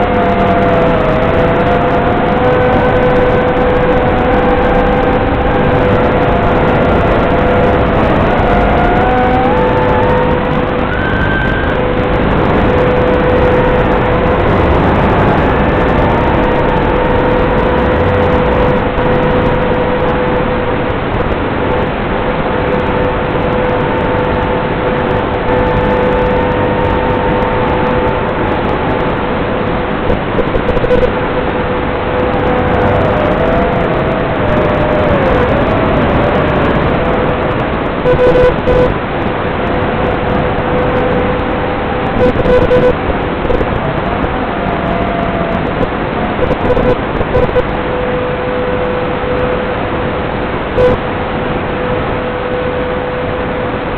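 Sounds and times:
quadcopter motor whine: 0.0 - 49.7
signal crackles: 30.0 - 31.3, 37.5 - 39.0, 42.0 - 43.7, 46.4 - 47.7, 50.8 - 51.0.

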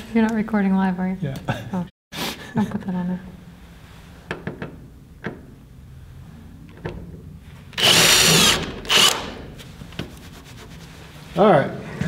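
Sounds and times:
cordless drill whining: 7.8 - 9.4.

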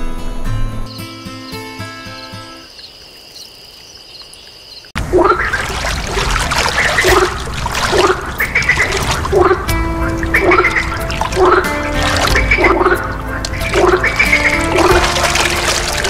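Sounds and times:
low frog croak: 2.6 - 5.6, 6.8 - 15.1
frogs calling in chorus: 6.5 - 16.0
background music: 8.0 - 16.0.

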